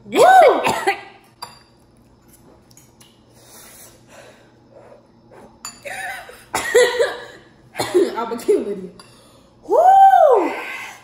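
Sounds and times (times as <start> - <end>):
people breathing while eating: 3.2 - 5.6, 9.1 - 9.6.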